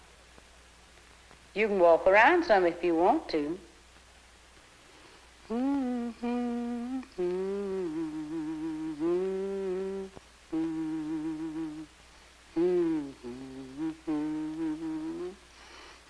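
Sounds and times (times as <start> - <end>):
woman humming: 5.5 - 11.9, 12.5 - 15.5.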